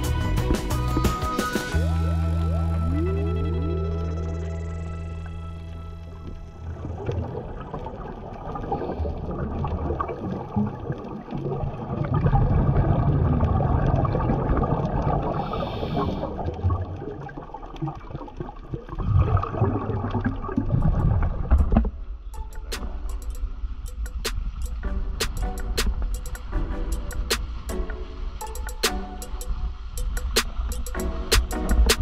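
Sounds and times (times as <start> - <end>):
gurgling exhaled bubbles underwater: 6.7 - 22.0
regulator hiss: 22.4 - 32.0.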